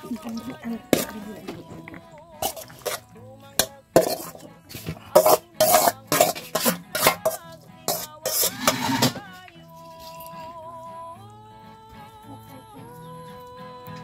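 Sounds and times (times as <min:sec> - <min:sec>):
metal spoon scraping a plate: 0:00.0 - 0:10.3.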